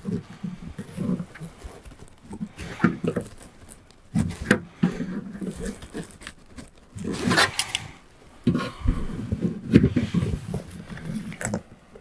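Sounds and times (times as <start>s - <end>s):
scraping rustle: 0.0s - 11.7s.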